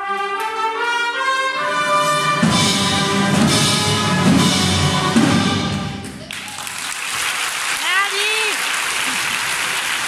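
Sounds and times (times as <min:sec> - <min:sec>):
brass chord: 0:00.0 - 0:06.0
wind and percussion ensemble: 0:00.0 - 0:07.4.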